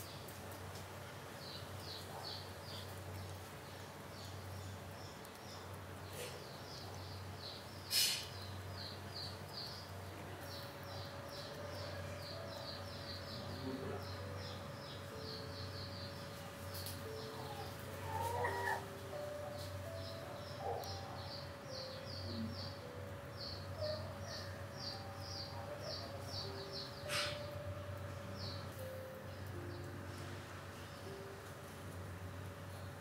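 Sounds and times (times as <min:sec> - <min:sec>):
small birds chirping: 0:00.0 - 0:31.4
low steady hum: 0:08.4 - 0:33.0.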